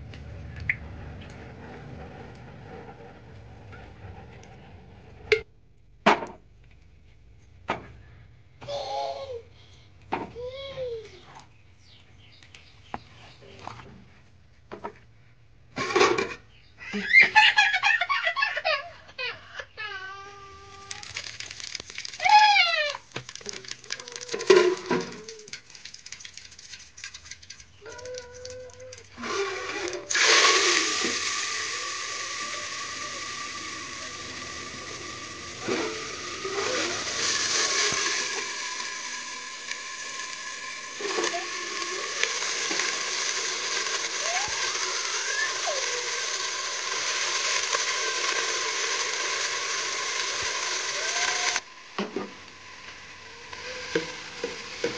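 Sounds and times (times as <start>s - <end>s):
hot oil sizzling loudly: 20.9s - 28.3s, 29.1s - 54.9s.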